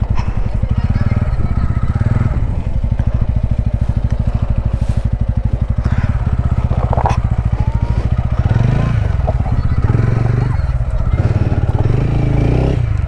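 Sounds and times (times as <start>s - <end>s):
motorcycle engine at low revs: 0.0s - 13.0s
clatters and scrapes: 3.0s - 10.0s.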